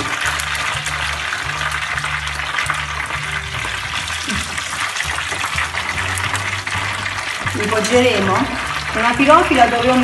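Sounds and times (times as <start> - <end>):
deep-frying sizzle: 0.0 - 10.0.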